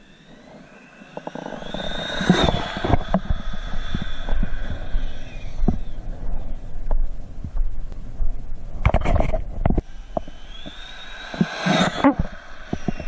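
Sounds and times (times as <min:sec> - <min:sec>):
electric motor whining: 0:00.0 - 0:07.2, 0:09.8 - 0:13.0
wind buffeting microphone: 0:00.1 - 0:13.0.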